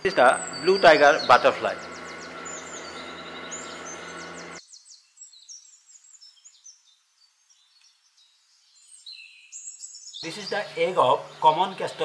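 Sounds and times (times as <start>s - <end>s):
low ambient hum: 0.0s - 4.6s
small birds chirping: 0.0s - 12.0s.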